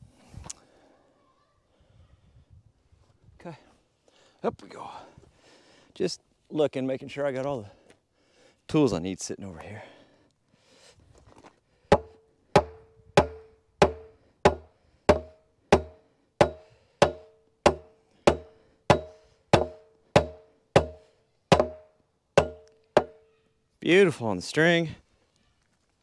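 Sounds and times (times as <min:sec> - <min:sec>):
hammer knocking with short ring: 0:11.9 - 0:23.2.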